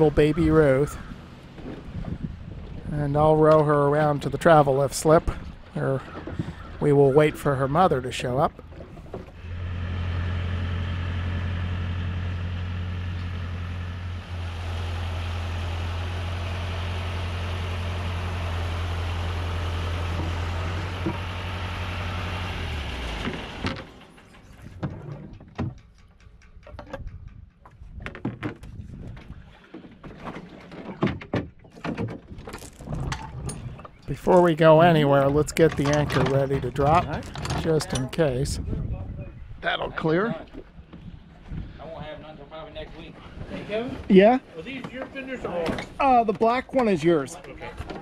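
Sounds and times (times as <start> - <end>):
engine idling: 7.4 - 24.8.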